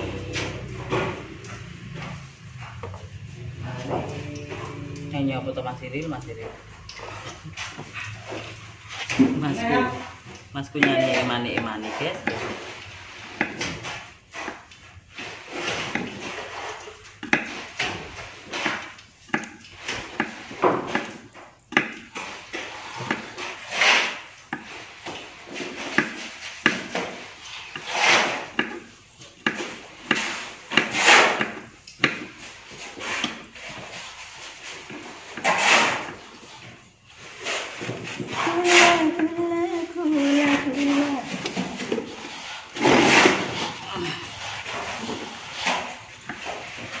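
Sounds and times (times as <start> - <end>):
knife scraping strokes: 22.2 - 47.0.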